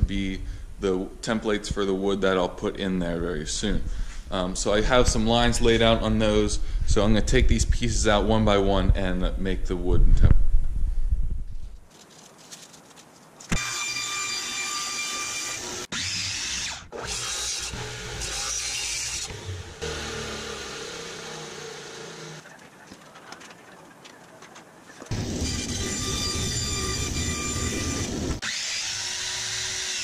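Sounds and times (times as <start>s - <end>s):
electric saw cutting wood: 13.5s - 22.4s, 25.1s - 30.0s.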